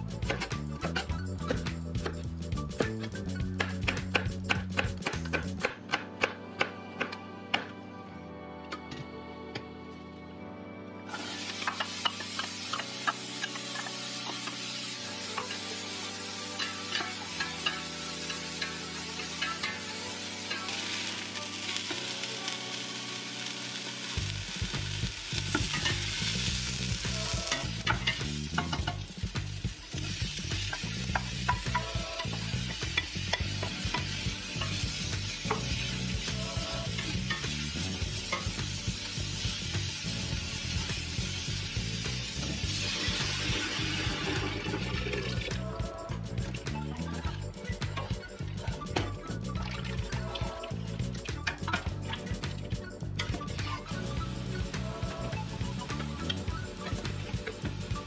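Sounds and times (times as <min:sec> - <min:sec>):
onion and garlic sizzling in oil: 0:11.1 - 0:46.2, 0:53.2 - 0:58.0.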